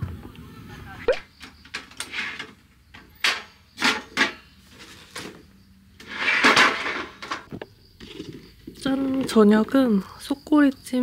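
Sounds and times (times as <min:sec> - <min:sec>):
scrape on wooden table: 0:02.0 - 0:02.5, 0:06.0 - 0:07.4.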